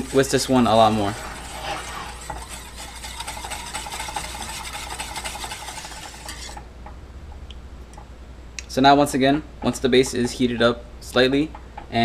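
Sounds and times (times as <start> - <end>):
whisk scraping metal saucepan: 0.0 - 6.7.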